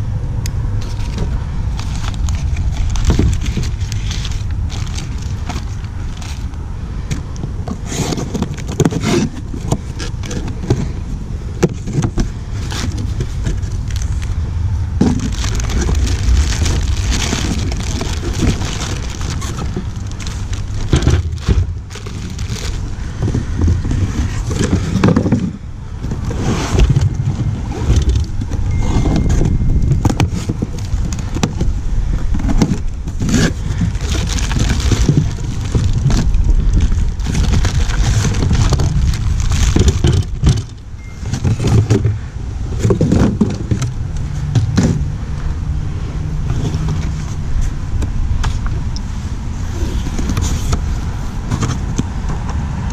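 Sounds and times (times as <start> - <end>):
plastic wrap crinkling: 0.8 - 6.6, 15.0 - 25.4, 28.0 - 42.0.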